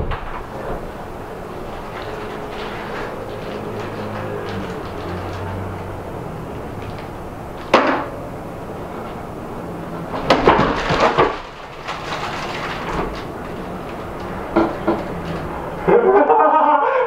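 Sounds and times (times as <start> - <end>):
objects clattering on table: 0.0 - 6.0, 6.7 - 8.2, 10.0 - 15.6.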